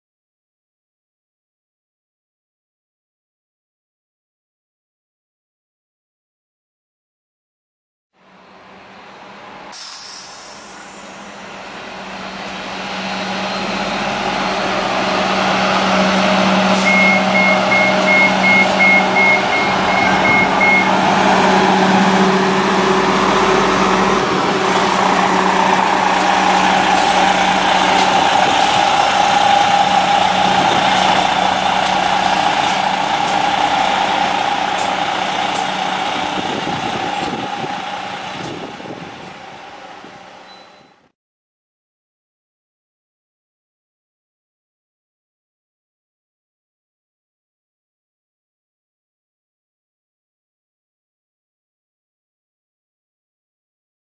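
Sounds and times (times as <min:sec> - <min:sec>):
bus diesel engine passing: 0:08.2 - 0:41.0
series of beeps: 0:16.8 - 0:20.9.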